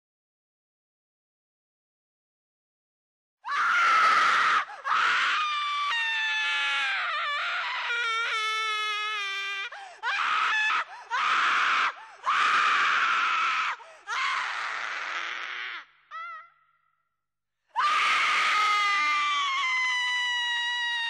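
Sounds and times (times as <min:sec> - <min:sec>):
harsh horror screams: 0:03.5 - 0:09.2, 0:10.0 - 0:16.1, 0:17.8 - 0:21.0.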